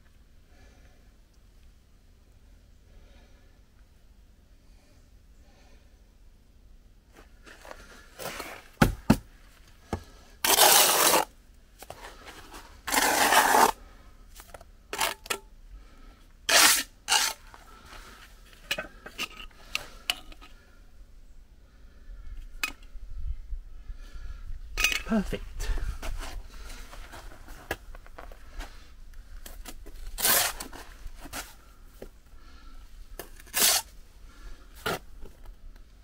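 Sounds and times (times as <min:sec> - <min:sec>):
trowel scraping mortar: 0:10.4 - 0:11.3, 0:12.6 - 0:13.8, 0:16.5 - 0:17.4, 0:30.1 - 0:30.7, 0:33.4 - 0:33.9.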